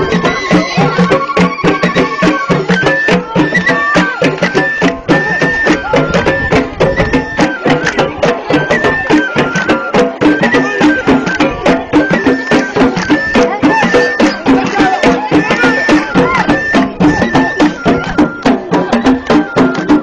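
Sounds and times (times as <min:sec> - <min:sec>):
drums: 0:00.0 - 0:20.0
handclaps: 0:07.7 - 0:08.1, 0:09.1 - 0:20.0.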